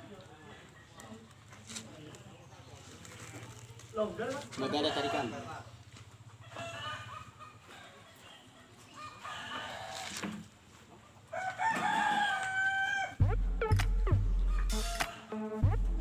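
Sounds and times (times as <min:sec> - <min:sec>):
rooster crowing: 0:04.6 - 0:05.6, 0:06.4 - 0:08.1, 0:08.9 - 0:10.2, 0:11.3 - 0:13.2
music with heavy bass beat: 0:13.2 - 0:16.0.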